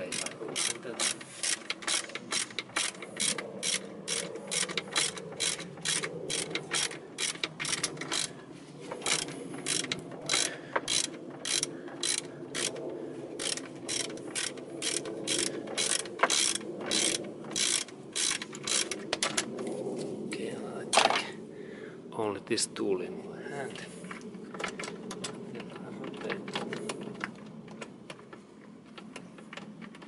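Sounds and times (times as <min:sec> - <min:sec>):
hand ratchet clicking: 0:00.0 - 0:08.3, 0:09.0 - 0:12.8, 0:13.4 - 0:19.0.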